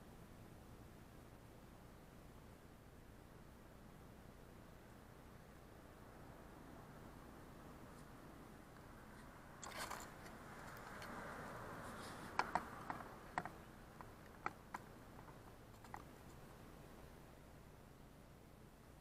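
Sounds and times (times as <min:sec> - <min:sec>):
camera handling rustle: 0:09.6 - 0:11.2.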